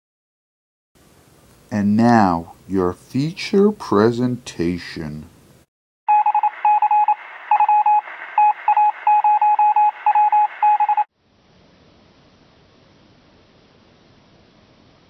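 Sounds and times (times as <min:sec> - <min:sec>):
steady hiss: 0:01.0 - 0:05.7
short electronic beeps: 0:06.1 - 0:11.1.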